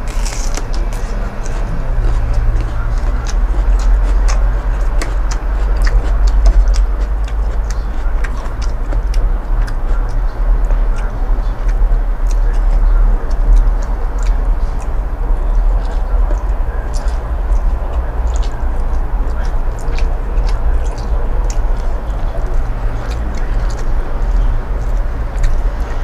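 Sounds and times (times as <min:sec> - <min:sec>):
person chewing: 0:00.0 - 0:26.0
sharp mouth clicks: 0:00.0 - 0:26.0
steady low rumble: 0:00.0 - 0:26.0.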